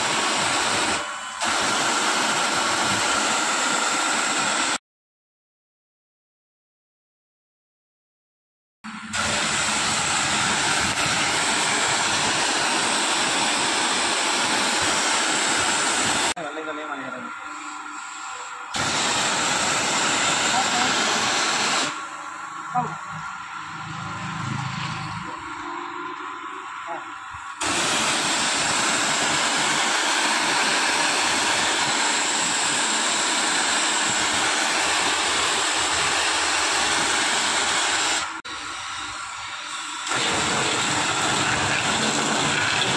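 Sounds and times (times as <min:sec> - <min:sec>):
pressure washer jet spraying water: 0:00.0 - 0:04.8, 0:09.0 - 0:16.4, 0:17.9 - 0:23.5, 0:27.6 - 0:42.9.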